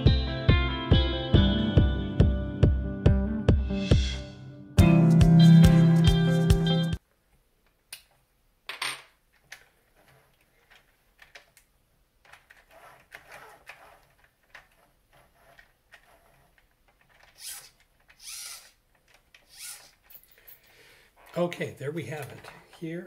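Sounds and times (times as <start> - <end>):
small metal parts clicking: 12.2 - 20.7.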